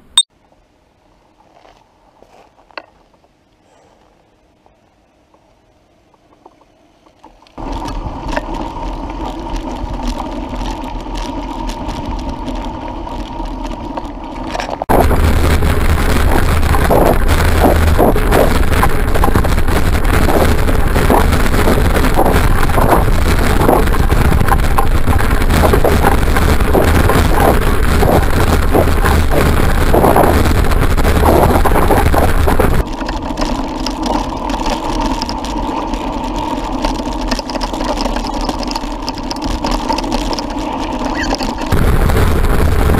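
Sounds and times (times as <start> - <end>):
rolling noise with hum: 0.0 - 42.9
low rumble: 7.6 - 37.7, 38.8 - 42.9
wind buffeting microphone: 14.8 - 32.8, 41.2 - 42.9.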